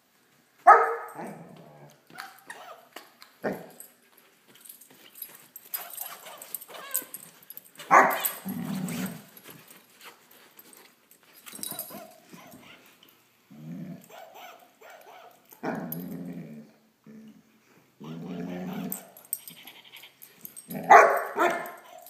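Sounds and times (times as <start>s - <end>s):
puppy growling: 8.2s - 9.4s, 13.5s - 14.3s, 15.6s - 17.4s, 18.0s - 21.0s.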